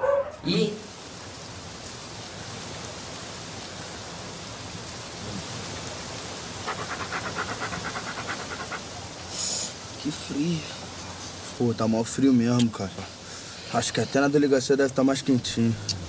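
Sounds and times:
steady background hiss: 0.0s - 16.0s
dog panting: 6.6s - 9.0s.

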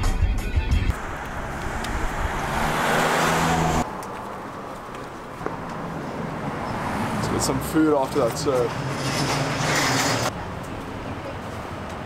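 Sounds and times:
car passing: 0.9s - 10.3s.

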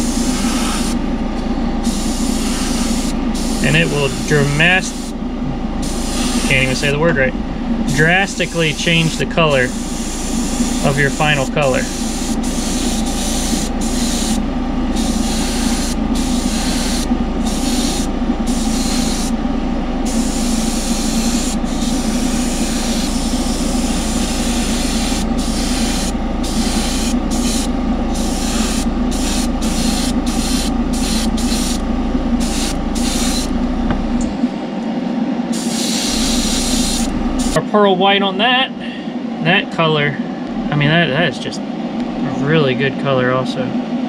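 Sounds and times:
airbrush hissing: 0.0s - 1.0s, 1.8s - 5.2s, 5.8s - 7.1s, 7.9s - 19.4s, 20.0s - 31.8s, 32.4s - 34.1s, 35.5s - 37.6s
spray booth fan humming: 0.0s - 44.0s.

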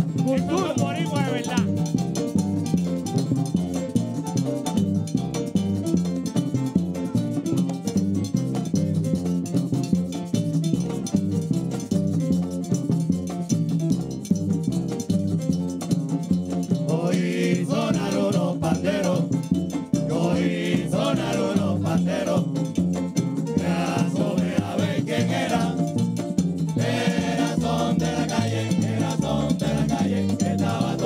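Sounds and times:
frame drums: 0.0s - 31.0s
upright bass: 0.0s - 31.0s
men singing a chorus: 16.9s - 19.4s, 20.1s - 22.7s, 23.6s - 26.0s, 26.8s - 31.0s.

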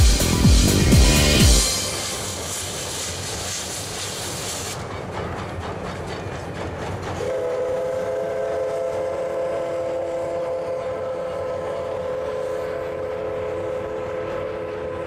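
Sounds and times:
train running: 0.0s - 15.0s
steam locomotive whistle: 1.0s - 4.8s, 7.2s - 15.0s.

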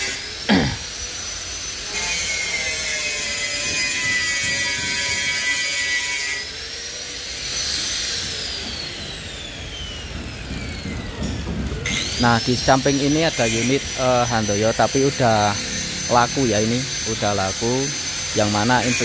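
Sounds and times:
angle grinder cutting metal: 0.0s - 19.0s
loud downward-sweeping noise: 14.4s - 18.9s.

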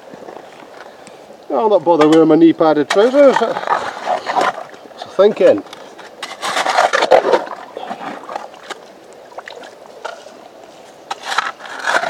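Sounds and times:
stones clacking and scraping: 2.8s - 12.0s.

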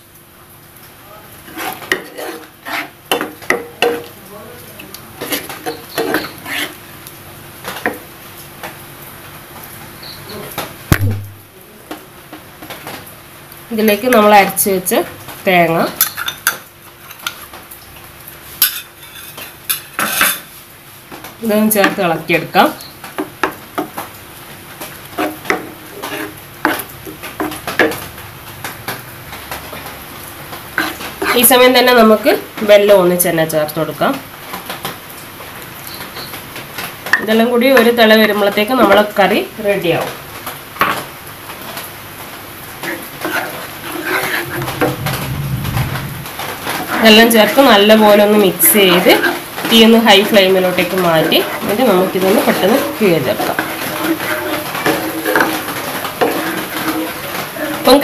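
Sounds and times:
spoon scraping frying pan: 1.4s - 4.2s, 5.2s - 6.8s, 18.6s - 20.5s, 25.0s - 28.0s, 30.8s - 31.6s, 42.8s - 45.1s, 46.7s - 58.0s.

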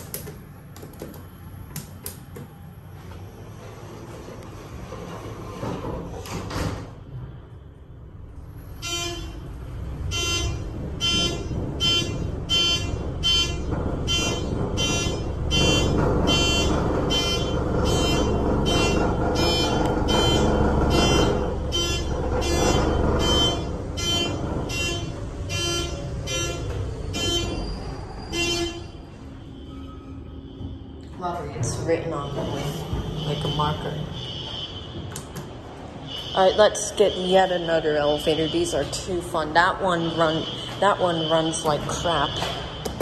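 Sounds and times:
elevator rumbling in shaft: 0.0s - 42.8s
fire alarm horns pulsing: 8.6s - 43.0s.

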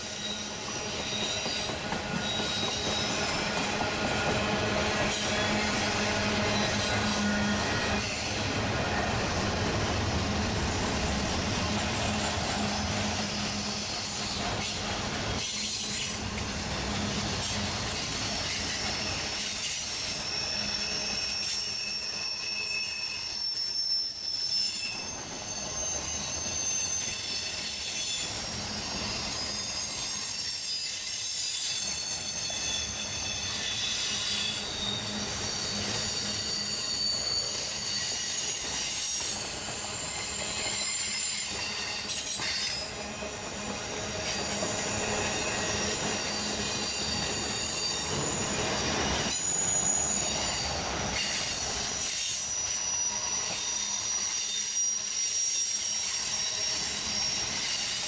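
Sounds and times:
train rumble: 0.0s - 22.3s
train wheels squealing: 0.0s - 58.0s.

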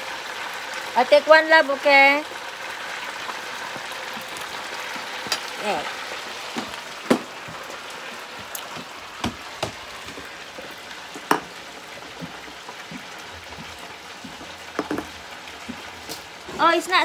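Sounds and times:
chicken frying in hot oil: 0.0s - 17.0s.

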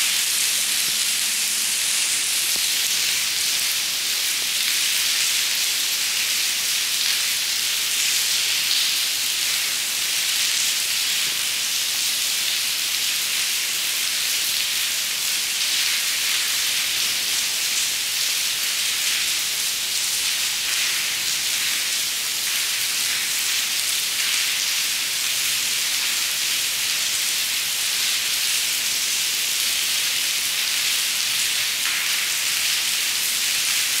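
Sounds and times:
rain on stone paving and puddles: 0.0s - 34.0s.

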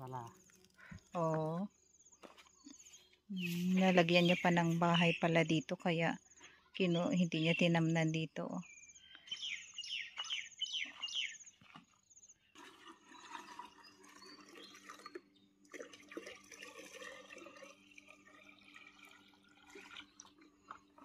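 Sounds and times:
birds chirping: 0.0s - 12.5s, 13.1s - 15.5s
water pouring into plastic can: 12.5s - 21.0s.

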